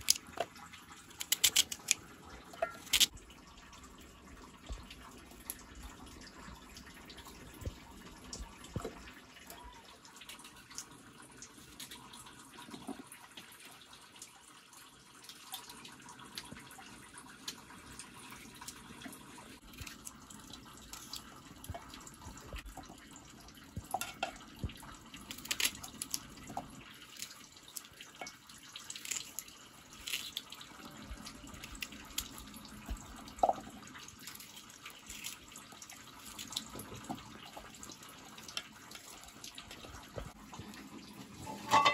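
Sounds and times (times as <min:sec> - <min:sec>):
pots simmering and hissing: 0:00.0 - 0:41.9
crackling wood fire: 0:23.8 - 0:30.6.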